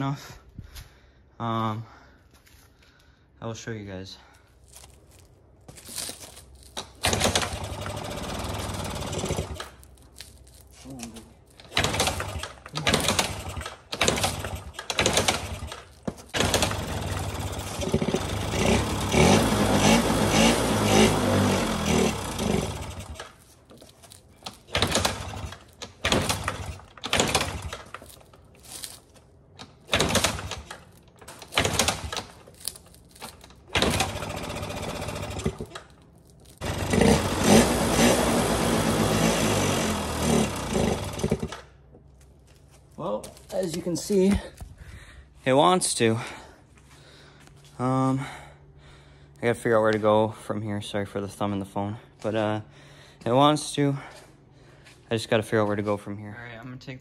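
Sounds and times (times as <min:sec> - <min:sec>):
scooter engine sputtering: 0:06.8 - 0:09.8, 0:11.5 - 0:23.4, 0:24.4 - 0:28.3, 0:29.6 - 0:41.8.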